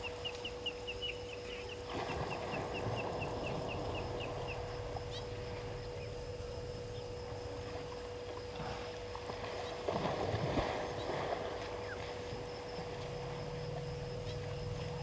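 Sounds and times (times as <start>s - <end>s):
faint steady hum: 0.0s - 15.0s
elephants splashing in water: 1.9s - 4.6s, 8.4s - 15.0s.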